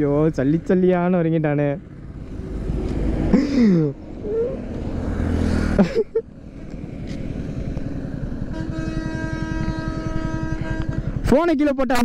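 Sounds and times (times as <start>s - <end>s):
steady traffic rumble: 0.0s - 12.0s
bus passing close by: 1.8s - 11.2s.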